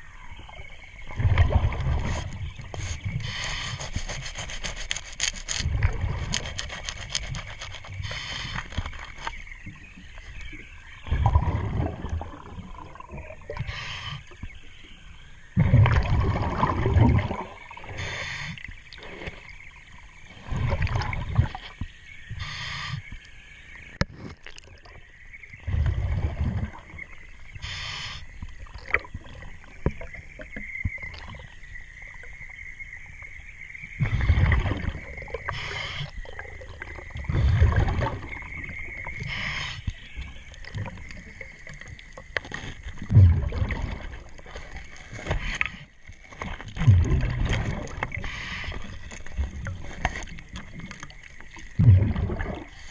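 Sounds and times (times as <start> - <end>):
exhale bubbling rumble: 0.0 - 4.6, 5.5 - 23.2, 24.4 - 52.9
diver breathing through regulator: 2.0 - 5.0, 6.9 - 8.9, 17.9 - 19.4, 22.4 - 23.1, 27.6 - 28.3, 35.4 - 36.2, 39.2 - 39.9, 48.2 - 49.2
brush scrubbing boat hull: 2.7 - 5.6, 6.2 - 8.9.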